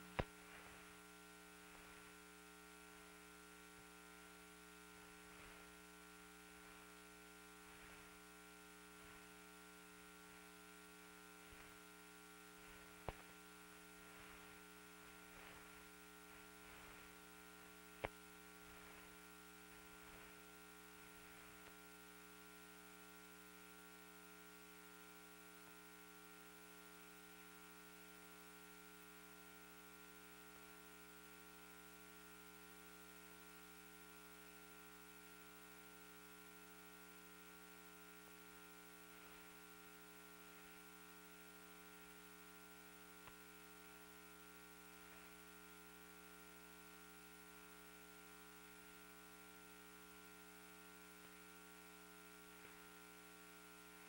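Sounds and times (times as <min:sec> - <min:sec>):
faint crackle: 0:00.0 - 0:28.3, 0:32.9 - 0:54.0
electrical hum: 0:00.0 - 0:54.0.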